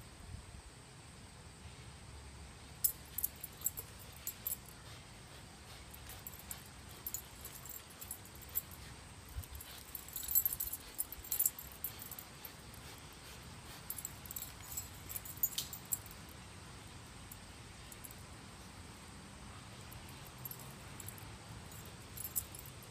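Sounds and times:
dog collar and tags jingling: 2.8 - 16.4, 17.2 - 18.3, 19.7 - 22.9.

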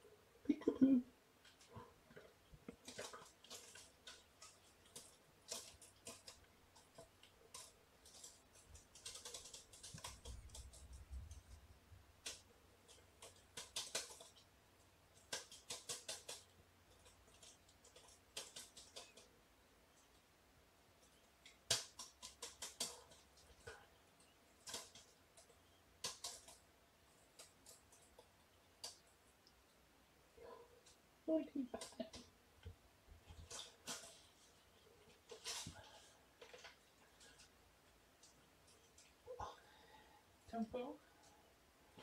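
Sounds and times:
soft rustles: 33.2 - 39.3.

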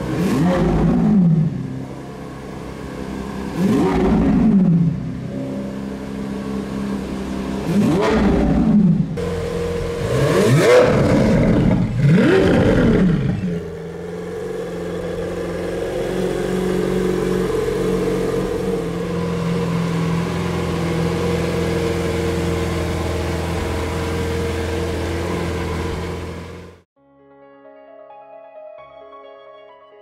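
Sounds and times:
car engine revving and idling: 0.0 - 26.8.

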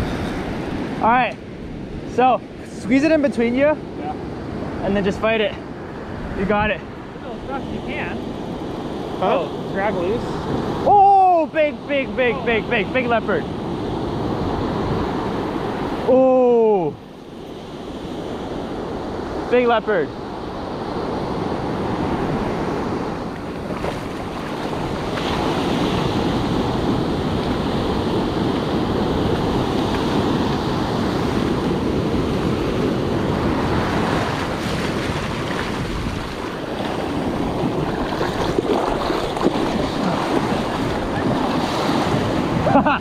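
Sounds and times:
ocean surf breaking on sand: 0.0 - 43.0
water splashing: 23.3 - 26.7, 33.8 - 42.7.

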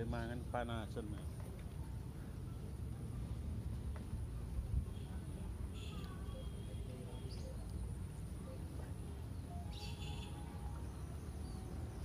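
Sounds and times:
small birds chirping: 5.9 - 12.0.

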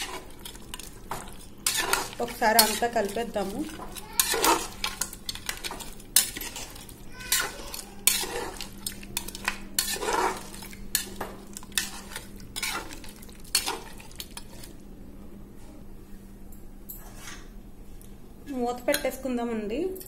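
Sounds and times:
spoon scraping and clinking pot: 0.0 - 14.7
light sizzle: 0.0 - 14.9.

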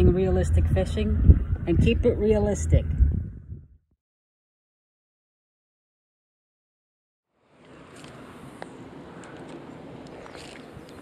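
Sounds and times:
low outdoor background rumble: 0.0 - 3.8.

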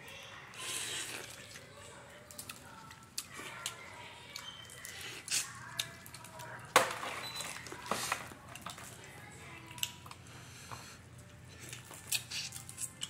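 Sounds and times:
wet squishing: 0.6 - 3.8.

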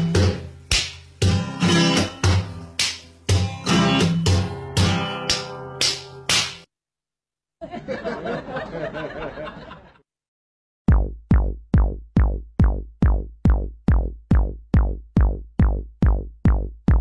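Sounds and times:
drum machine kick drum: 0.0 - 6.6, 10.9 - 17.0.

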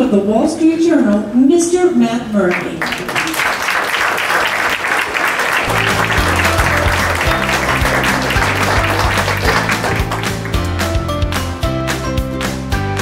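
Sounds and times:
audience applauding: 2.5 - 11.1
music with bass and steady beat: 5.7 - 13.0.

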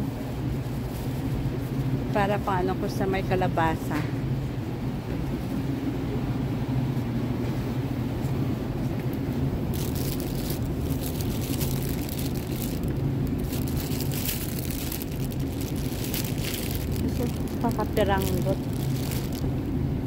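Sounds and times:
low background hum: 0.0 - 20.0
plastic bags crinkling: 9.7 - 19.6.

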